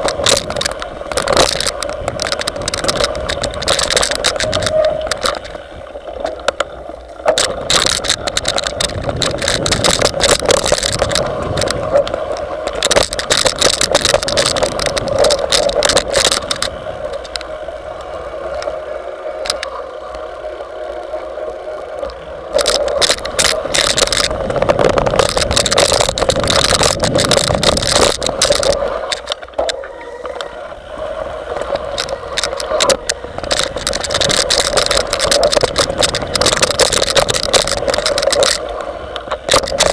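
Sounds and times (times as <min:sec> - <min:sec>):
bike rattling and knocking: 0:00.0 - 0:20.1, 0:21.0 - 0:39.9.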